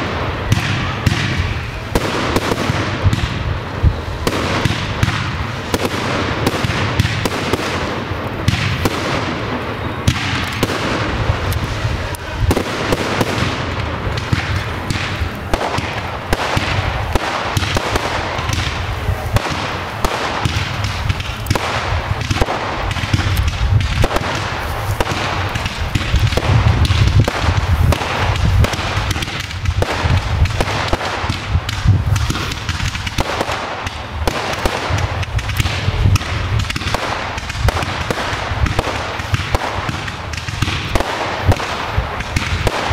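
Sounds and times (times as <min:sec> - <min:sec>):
fireworks launching and bursting: 0:00.0 - 0:42.9.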